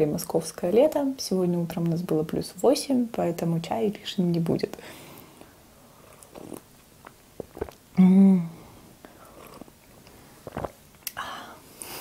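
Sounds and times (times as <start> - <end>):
woman sipping tea: 5.4 - 11.2
woman humming: 8.0 - 8.7.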